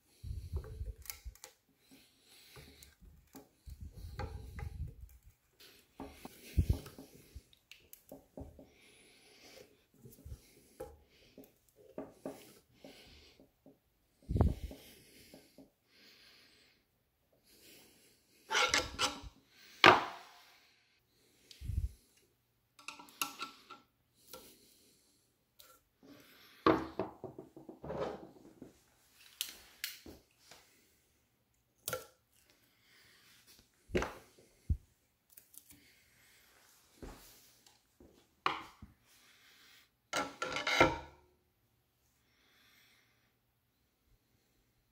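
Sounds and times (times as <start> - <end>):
screw scraping in wood: 18.5 - 19.3, 40.2 - 41.0.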